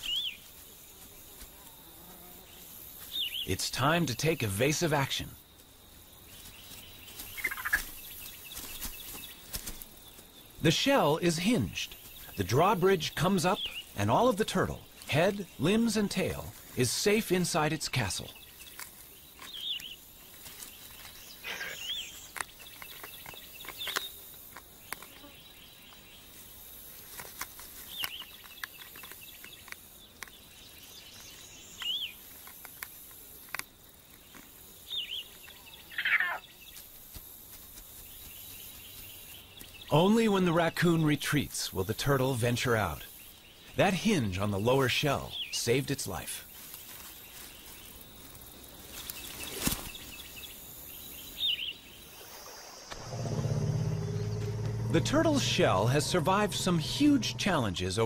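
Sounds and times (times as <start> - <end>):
birds chirping: 0.0 - 37.0, 37.9 - 58.0
light clicks and scratches on shell: 27.0 - 30.4
rising and falling bird call: 51.3 - 57.7
low steady hum: 53.0 - 58.0.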